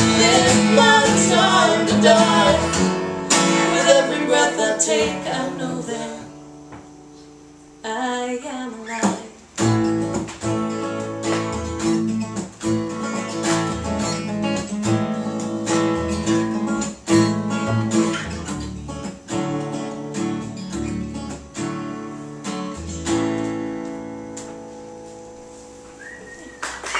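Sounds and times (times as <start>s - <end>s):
plucked double bass: 0.0s - 4.0s
acoustic guitar strumming: 0.0s - 7.8s, 8.8s - 26.9s.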